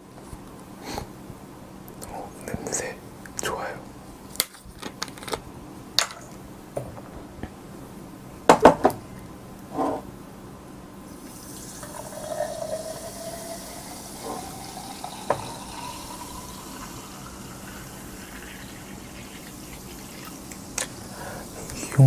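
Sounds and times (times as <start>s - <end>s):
soda pouring and fizzing: 11.1s - 21.6s.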